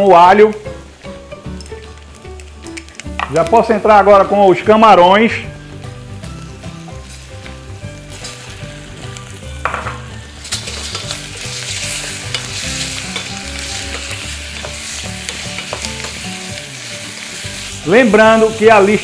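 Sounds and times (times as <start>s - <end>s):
shrimp sizzling in a pan: 0.0s - 19.0s
wooden spoon stirring: 10.4s - 16.6s.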